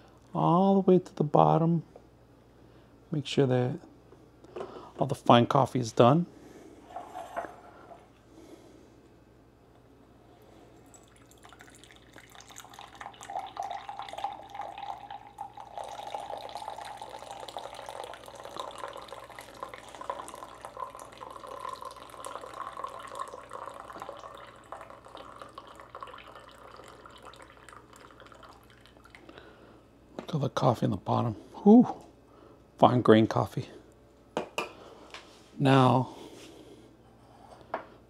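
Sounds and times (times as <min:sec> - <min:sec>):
coffee streaming into a cup: 0:10.6 - 0:29.3.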